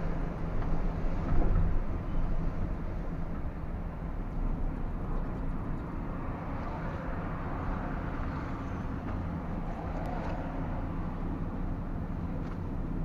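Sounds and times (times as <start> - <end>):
road noise: 0.0 - 13.0.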